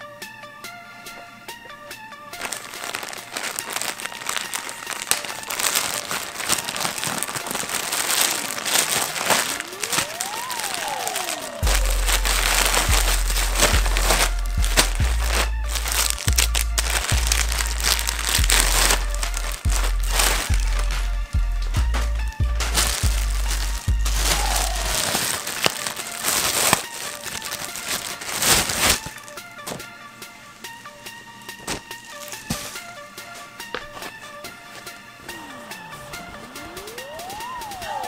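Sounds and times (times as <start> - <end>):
electronic background music: 0.0 - 38.0
plastic mailer bag crinkling: 2.4 - 30.0, 31.4 - 34.3
heavy bass beat: 11.6 - 25.1.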